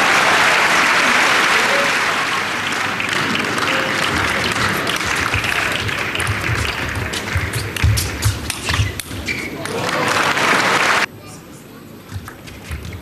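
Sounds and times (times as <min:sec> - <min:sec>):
crowd applauding: 0:00.0 - 0:08.2, 0:09.5 - 0:11.1.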